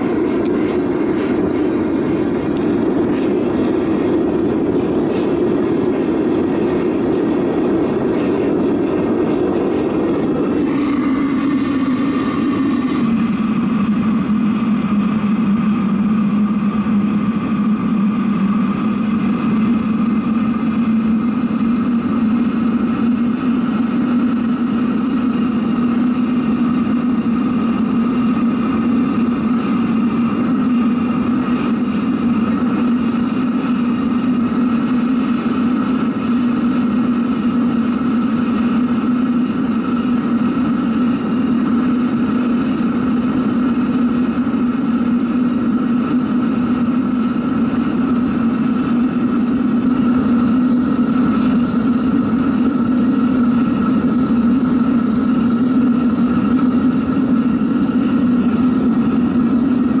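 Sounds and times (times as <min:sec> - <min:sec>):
blower whine: 0:00.0 - 1:00.0
furnace burner droning: 0:00.0 - 1:00.0.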